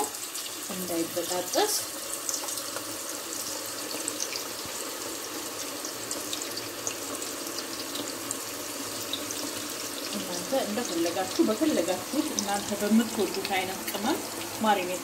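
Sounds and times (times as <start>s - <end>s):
meat frying in hot oil: 0.0s - 15.0s
oil crackles and pops: 1.6s - 5.0s.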